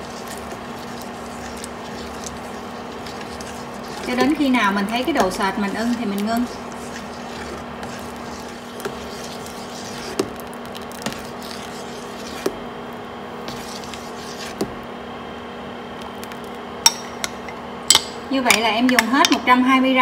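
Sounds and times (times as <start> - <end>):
soup stirring: 0.0 - 14.9
steady hum: 0.0 - 20.0.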